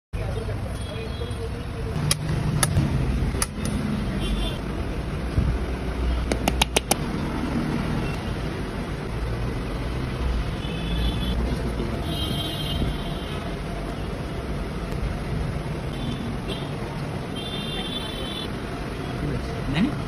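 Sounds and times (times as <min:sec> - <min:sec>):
road traffic rumble: 0:00.2 - 0:20.0
sharp clicks: 0:06.2 - 0:07.0.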